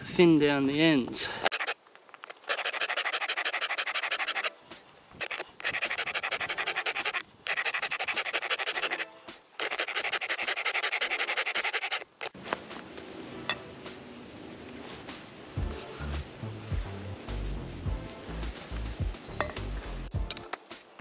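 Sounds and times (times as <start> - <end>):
hand file rasping wood: 1.5 - 12.1.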